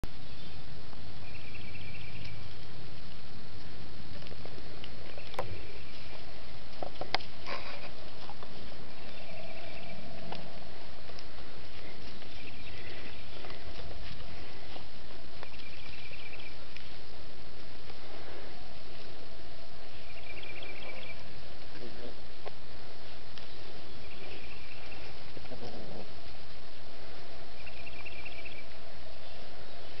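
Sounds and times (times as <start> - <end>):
low rumble on microphone: 0.0 - 30.0
rustling in dry leaves: 0.0 - 30.0
steady hiss: 0.1 - 30.0
sharp crackles and clicks: 0.9 - 18.0
high pulsing insect trill: 7.3 - 17.8, 22.2 - 30.0.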